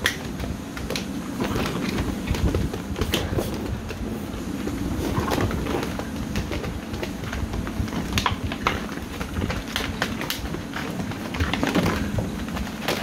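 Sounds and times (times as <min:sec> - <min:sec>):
puppy claws clicking on plastic: 0:00.0 - 0:04.0, 0:05.2 - 0:13.0
constant low rumble: 0:00.0 - 0:13.0.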